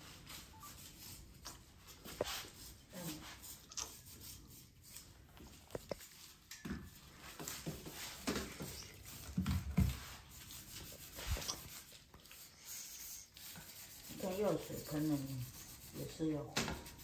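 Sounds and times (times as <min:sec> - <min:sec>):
brush scrubbing metal filter: 0:07.2 - 0:17.0.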